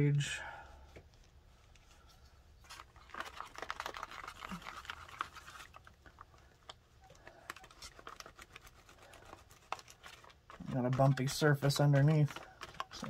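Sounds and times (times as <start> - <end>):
glue stick rubbing on paper: 7.6 - 13.0.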